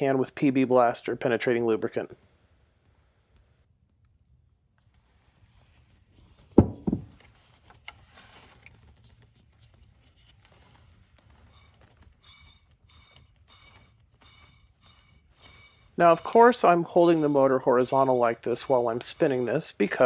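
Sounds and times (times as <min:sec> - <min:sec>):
heavy thumps on a bench: 0:06.6 - 0:07.2
fan bearing squeaking: 0:11.5 - 0:20.0.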